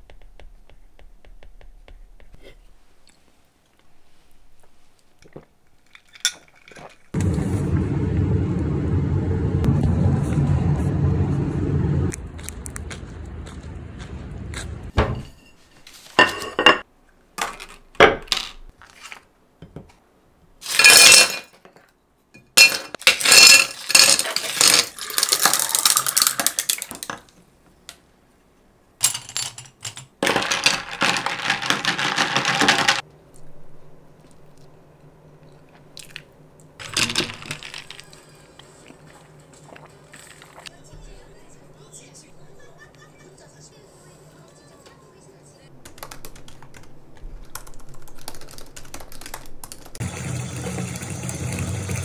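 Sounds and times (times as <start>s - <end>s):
glass and ice clinking: 22.4s - 26.3s
water pouring over ice: 24.4s - 26.9s, 36.8s - 38.2s.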